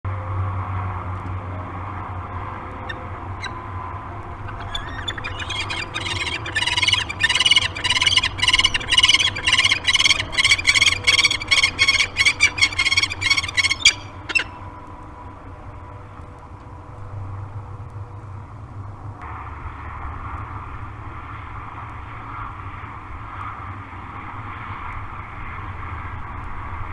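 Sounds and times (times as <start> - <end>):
steady low hum: 0.1 - 26.9
falcons chittering calls: 2.8 - 14.6.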